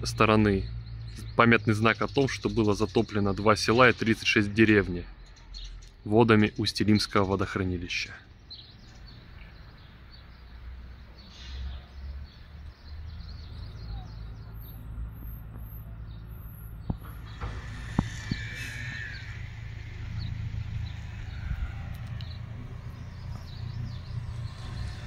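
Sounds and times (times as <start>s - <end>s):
small birds chirping: 0.0s - 25.0s
steady low rumble: 16.7s - 25.0s.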